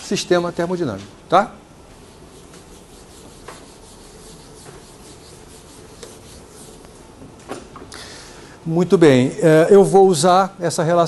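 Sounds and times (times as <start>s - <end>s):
eraser rubbing on chalkboard: 2.0s - 7.0s.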